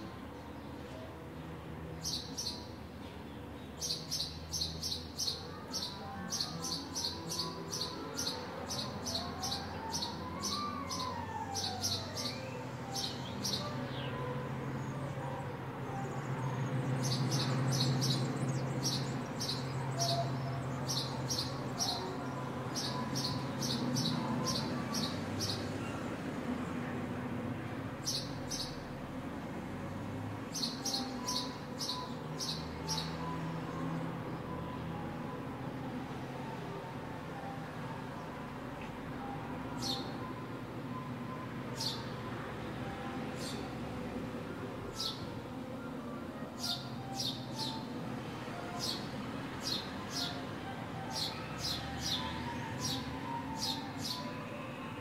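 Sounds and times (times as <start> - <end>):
sparrow chirping: 2.0 - 2.7, 3.8 - 14.3, 16.6 - 26.0, 28.0 - 28.8, 30.5 - 33.7, 45.0 - 45.3, 46.6 - 47.9, 48.7 - 50.4, 51.1 - 54.2.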